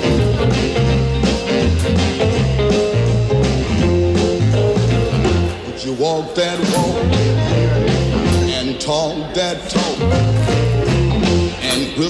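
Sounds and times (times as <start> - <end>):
stepping bass line: 0.0 - 5.8, 6.7 - 8.8, 9.8 - 11.7
rock and roll song: 0.0 - 12.0
person singing: 5.6 - 12.0.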